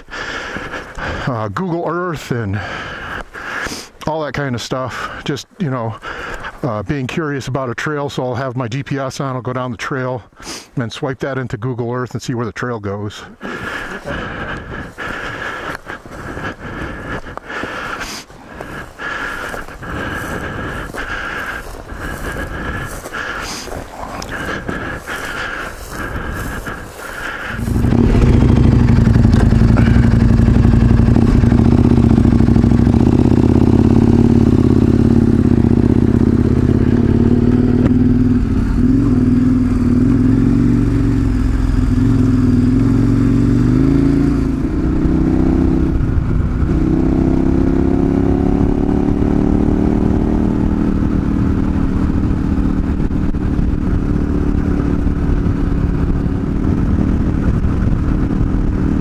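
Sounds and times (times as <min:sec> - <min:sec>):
motorcycle engine revving: 0:13.4 - 0:59.0.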